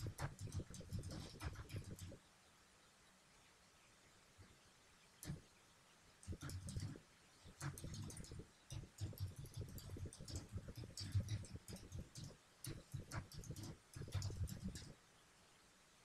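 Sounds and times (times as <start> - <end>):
computer keyboard typing: 0.0 - 2.2, 6.2 - 15.0.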